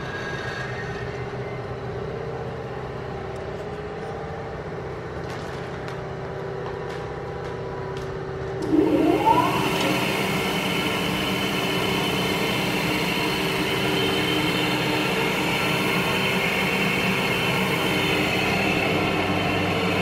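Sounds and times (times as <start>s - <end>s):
electric mill motor humming: 8.6s - 20.0s.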